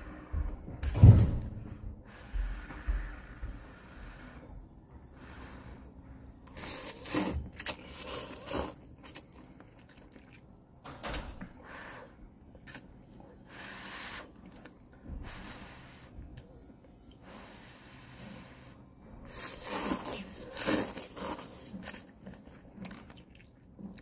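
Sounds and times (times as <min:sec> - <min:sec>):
noodles slurping: 0:06.4 - 0:10.5, 0:19.2 - 0:24.0
chewing: 0:06.4 - 0:10.6, 0:14.2 - 0:15.0, 0:19.2 - 0:24.0.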